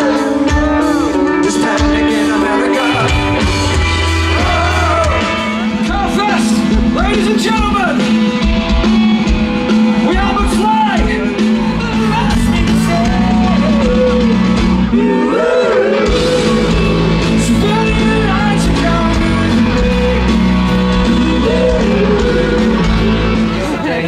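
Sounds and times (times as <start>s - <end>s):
person singing: 0.0s - 5.8s, 11.6s - 24.0s
drums: 0.0s - 24.0s
electric guitar: 0.0s - 24.0s
rock band playing live: 0.0s - 24.0s.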